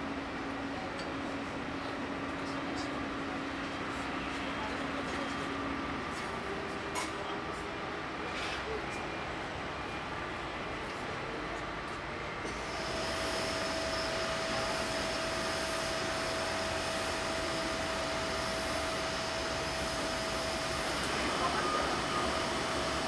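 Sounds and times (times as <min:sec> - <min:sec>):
thin constant whine: 0:00.0 - 0:23.0
jet engines droning: 0:12.2 - 0:23.0.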